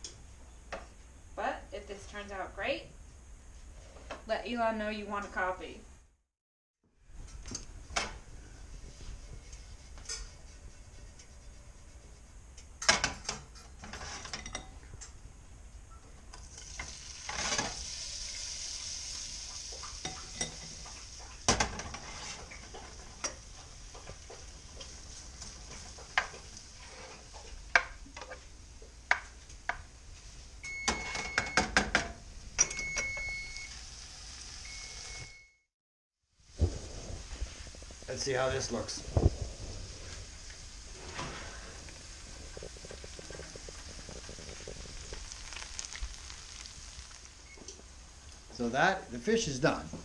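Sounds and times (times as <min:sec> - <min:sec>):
shrimp sizzling in a frying pan: 0:16.4 - 0:27.6, 0:33.4 - 0:35.2, 0:39.6 - 0:48.1.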